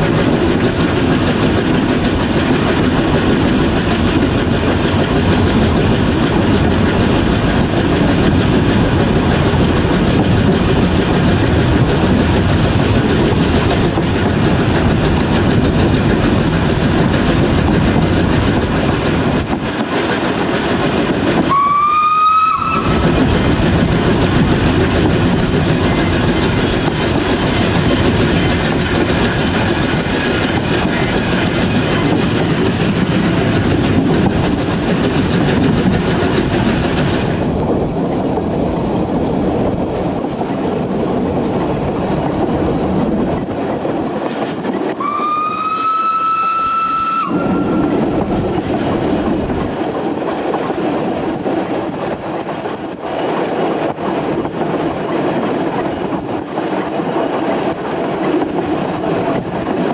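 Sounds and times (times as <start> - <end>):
steam train running with wheel clatter: 0.0 - 59.9
steam locomotive whistle: 21.5 - 23.2, 45.0 - 48.2.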